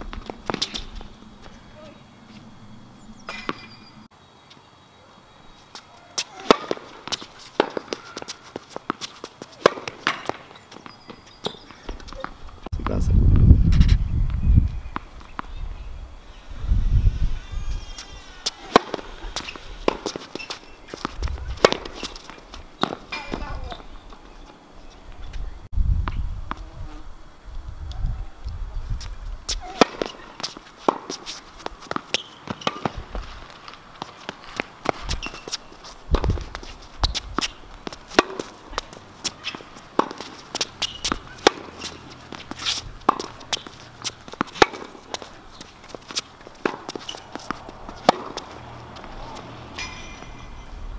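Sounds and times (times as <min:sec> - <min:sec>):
quick footsteps and shoe scuffs: 0:05.6 - 0:13.0, 0:17.5 - 0:25.5, 0:28.9 - 0:50.4
tennis racket strikes: 0:06.2 - 0:09.0, 0:18.4 - 0:23.5, 0:37.4 - 0:45.2, 0:46.1 - 0:48.5, 0:49.2 - 0:50.6
ball bouncing on hard court: 0:17.9 - 0:23.9, 0:34.0 - 0:50.4.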